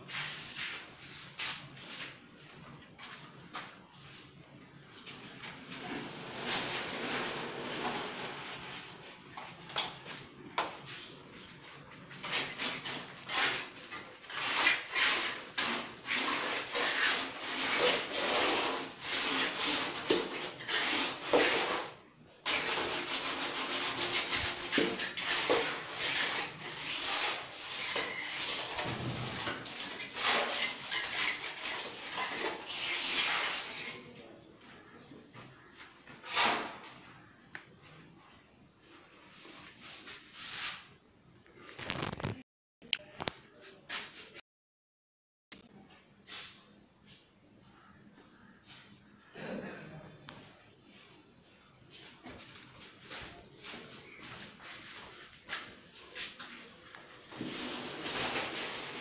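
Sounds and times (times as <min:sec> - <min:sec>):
trowel scraping wet cement: 0:12.3 - 0:34.1.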